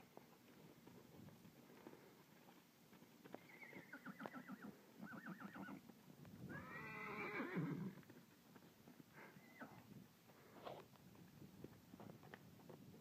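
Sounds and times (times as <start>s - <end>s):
hoofbeats on sand: 0.0s - 4.9s, 5.7s - 13.0s
horse whinnying: 3.4s - 5.8s, 6.5s - 8.0s.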